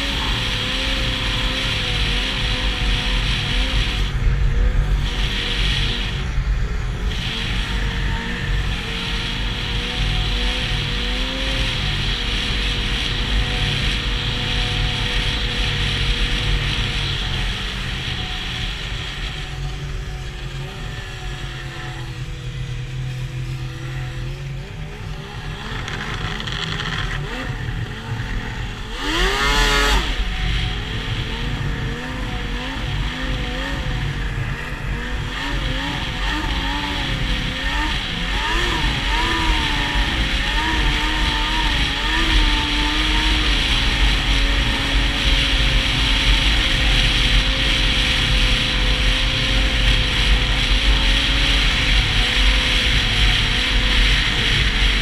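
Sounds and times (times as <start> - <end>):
wind noise: 0.0 - 23.7
snowmobile engine revving: 0.0 - 55.0.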